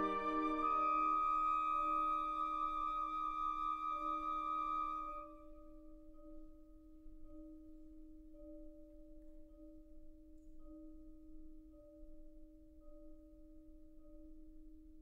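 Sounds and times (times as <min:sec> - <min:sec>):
wind ensemble held note: 0:00.0 - 0:01.7.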